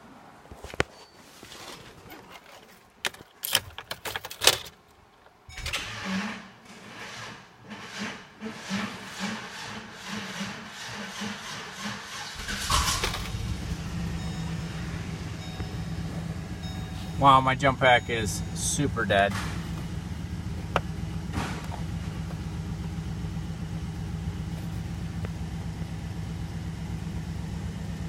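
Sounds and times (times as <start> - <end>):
engine cranking slowly: 7.7 - 28.0
engine running: 12.2 - 28.0.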